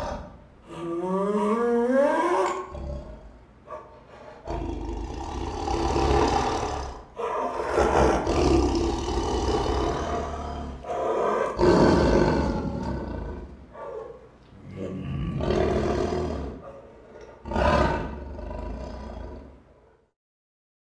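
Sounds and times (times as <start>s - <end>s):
tiger growling: 0.0s - 0.8s, 1.9s - 19.7s.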